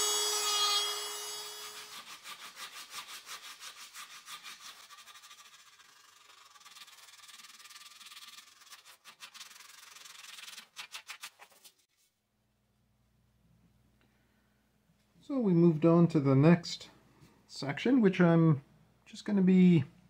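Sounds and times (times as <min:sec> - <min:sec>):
hand sanding wood: 0:01.6 - 0:11.7.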